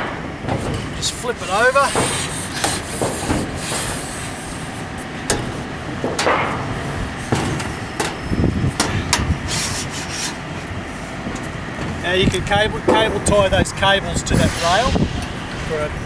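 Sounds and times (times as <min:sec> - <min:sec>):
metal knocks and scrapes: 0:00.0 - 0:04.0, 0:05.3 - 0:08.2
steady background noise: 0:00.0 - 0:16.0.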